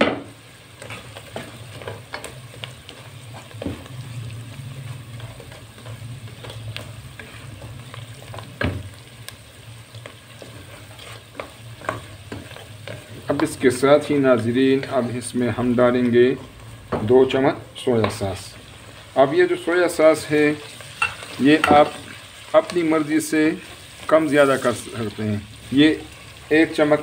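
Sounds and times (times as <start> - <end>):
spatula scraping and knocking pot: 0.0 - 4.1, 4.8 - 9.0, 10.0 - 13.5
food sizzling in a pot: 0.0 - 27.0.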